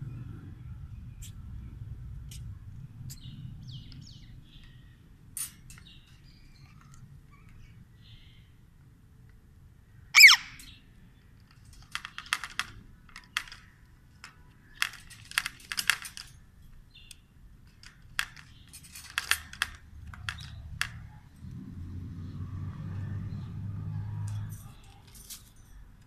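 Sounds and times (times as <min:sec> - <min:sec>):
parakeet squawk: 0:10.2 - 0:10.6.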